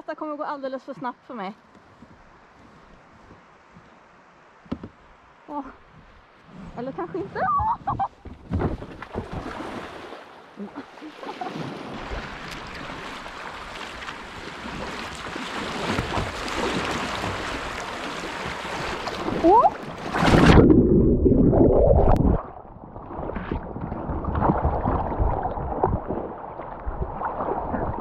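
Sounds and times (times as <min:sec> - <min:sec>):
muffled underwater churning: 0:05.9 - 0:28.0.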